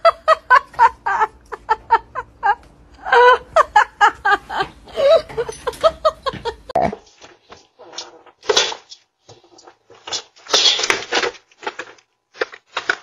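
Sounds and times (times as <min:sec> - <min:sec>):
person giggling: 0:00.0 - 0:07.0.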